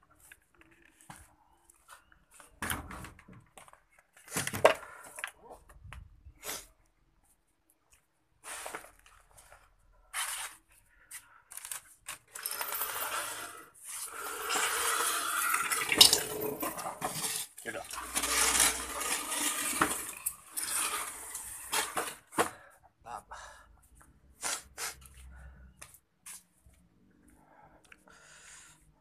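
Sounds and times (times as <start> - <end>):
objects scraped and knocked: 12.1 - 22.6
plastic bags rustling: 15.5 - 22.4.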